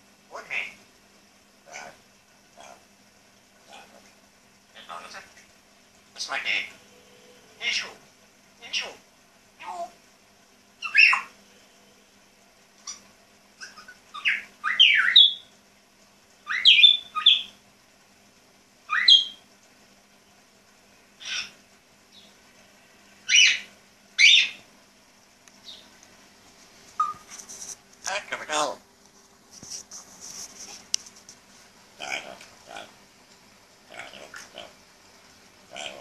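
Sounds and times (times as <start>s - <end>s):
parrot whistling and chirping: 10.8s - 11.4s, 13.6s - 15.5s, 16.4s - 17.6s, 18.9s - 19.4s, 21.2s - 21.6s, 23.2s - 24.6s, 27.0s - 27.3s.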